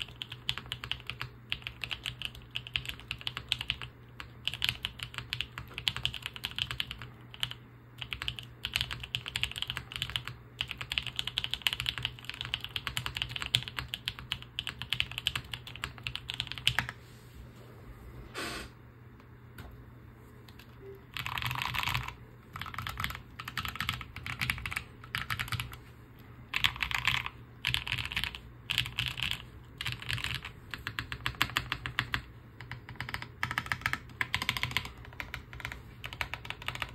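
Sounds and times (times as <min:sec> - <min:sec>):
typing on mechanical keyboard: 0:00.0 - 0:17.0, 0:20.5 - 0:25.8, 0:26.5 - 0:36.9.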